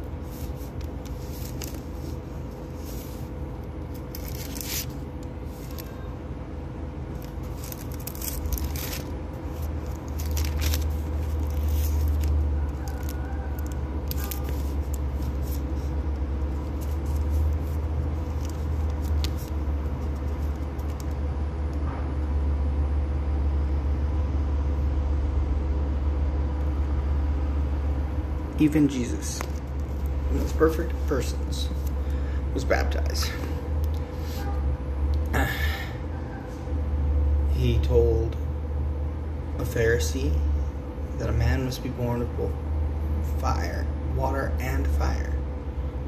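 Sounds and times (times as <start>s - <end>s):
faint steady hum: 0.0s - 46.0s.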